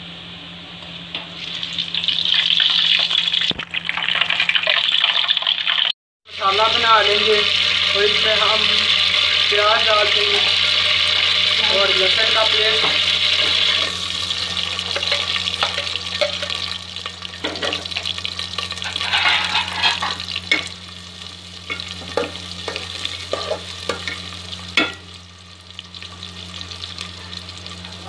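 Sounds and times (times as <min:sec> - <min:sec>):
onions sizzling in oil: 0:01.3 - 0:28.0
metal spatula scraping pot: 0:12.8 - 0:14.0, 0:18.6 - 0:20.7.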